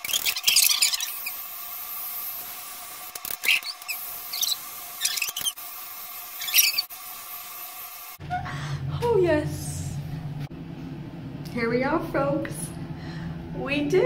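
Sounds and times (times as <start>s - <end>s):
short high-pitched squeaks: 0.0s - 1.4s, 3.2s - 5.6s, 6.4s - 6.9s.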